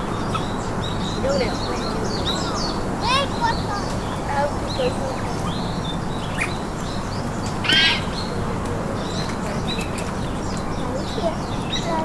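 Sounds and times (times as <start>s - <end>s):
steady outdoor hiss: 0.0s - 12.0s
animal squealing call: 7.6s - 8.1s.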